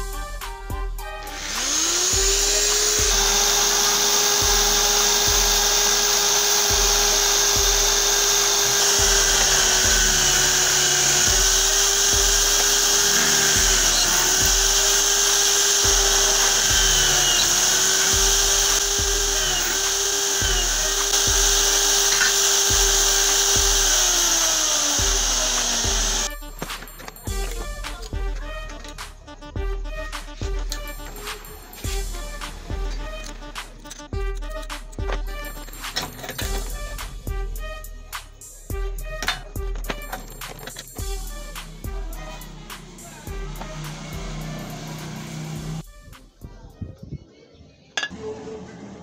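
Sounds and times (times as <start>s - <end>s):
background music with beat: 0.0s - 47.1s
electric drill drilling metal: 1.2s - 28.1s, 39.2s - 45.8s.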